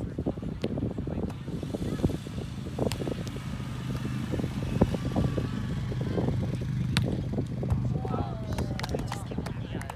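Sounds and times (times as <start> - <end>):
hands slapping volleyball: 6.8 - 7.8.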